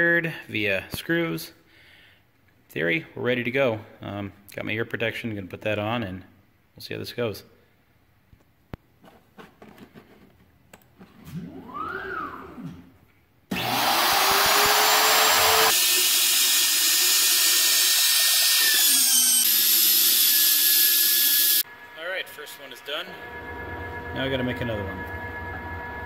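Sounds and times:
machine motors whining: 11.2s - 26.0s
wood router spinning: 11.4s - 12.8s, 13.5s - 26.0s.

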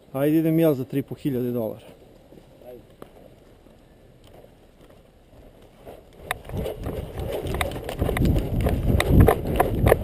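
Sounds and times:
running footsteps on gravel: 2.0s - 10.0s
gear clicking and thumping: 6.1s - 10.0s.

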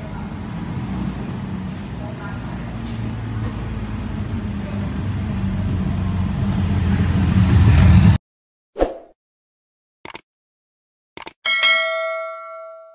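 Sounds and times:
street traffic noise: 0.0s - 8.2s
vehicle engine humming: 0.0s - 8.2s.

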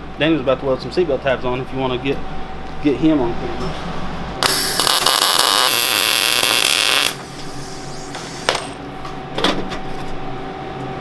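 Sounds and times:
welder crackling: 4.4s - 7.3s.

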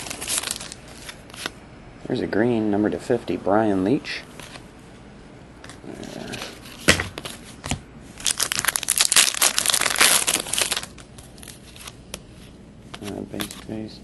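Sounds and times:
foil wrapper tearing and crinkling: 0.0s - 1.2s, 8.2s - 12.0s.

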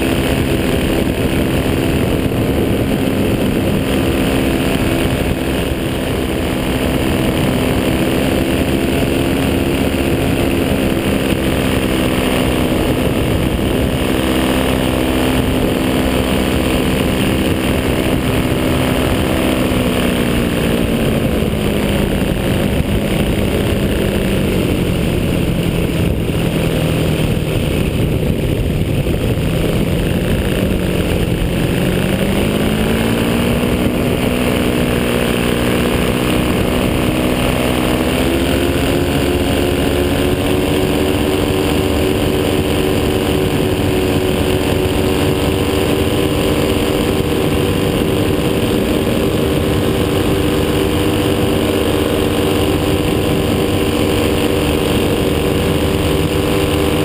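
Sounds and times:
paramotor engine and propeller: 0.0s - 57.0s.

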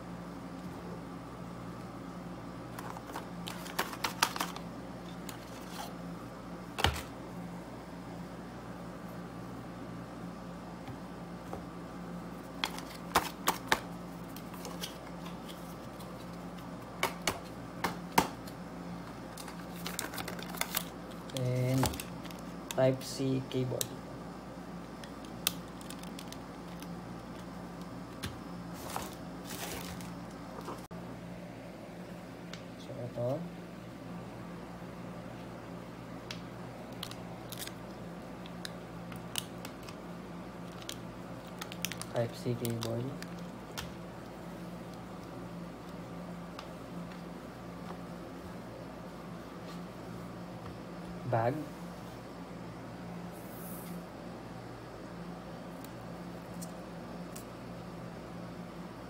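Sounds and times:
steady low hum: 0.0s - 59.0s
packaging rustling: 2.7s - 5.9s, 12.5s - 16.4s, 19.3s - 22.6s, 28.7s - 30.9s, 40.6s - 43.8s.

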